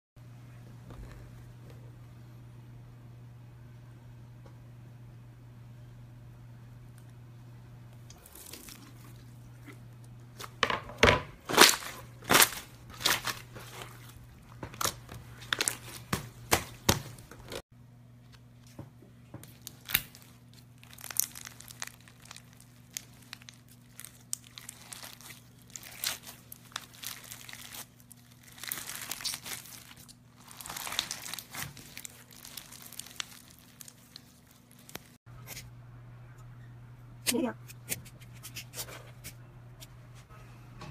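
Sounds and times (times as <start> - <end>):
crunchy slime crackling: 8.2 - 9.4, 11.4 - 17.6, 19.4 - 35.2.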